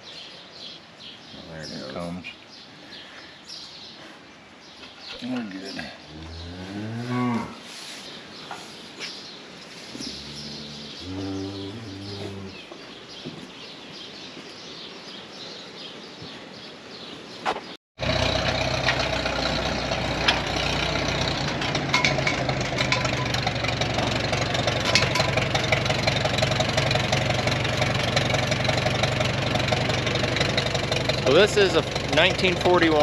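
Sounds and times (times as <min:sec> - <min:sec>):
tractor engine running: 0:18.0 - 0:33.0.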